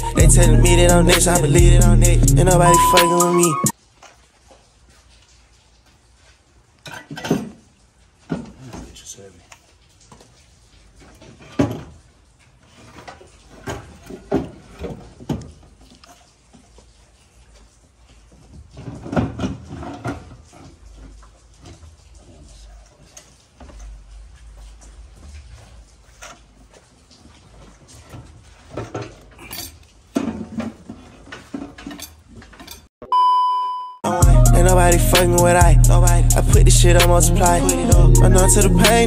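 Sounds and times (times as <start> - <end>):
hand tools clinking on metal: 29.4 - 29.9, 31.6 - 32.9.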